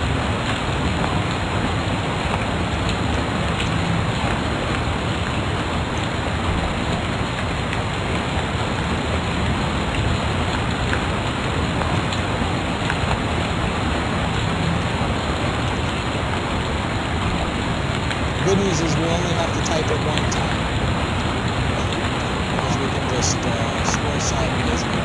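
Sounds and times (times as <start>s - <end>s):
steady background hiss: 17.6s - 25.0s.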